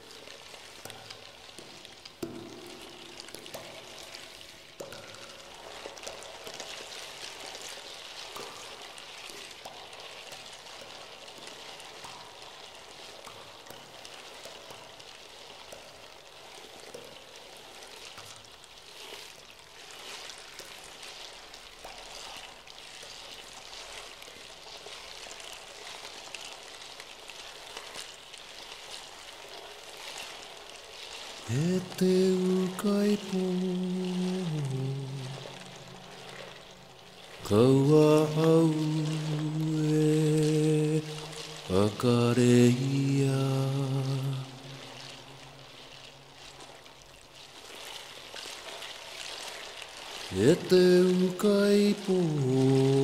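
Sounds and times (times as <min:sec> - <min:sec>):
running water with crackles: 0:00.0 - 0:53.0.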